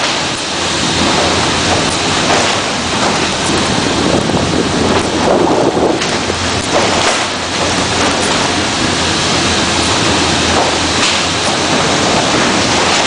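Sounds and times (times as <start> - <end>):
vehicle engine and road noise: 0.0 - 13.0
wind buffeting microphone: 0.0 - 13.0.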